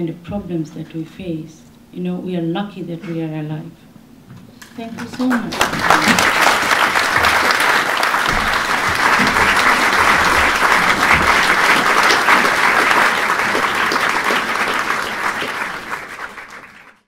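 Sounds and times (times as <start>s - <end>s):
audience applauding: 5.0s - 17.0s.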